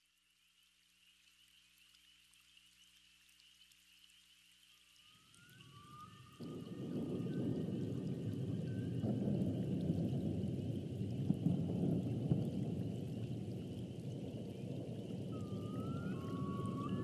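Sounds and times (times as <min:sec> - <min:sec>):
high hiss with crackles: 0:00.0 - 0:17.0
rain-like wash of noise: 0:04.6 - 0:17.0.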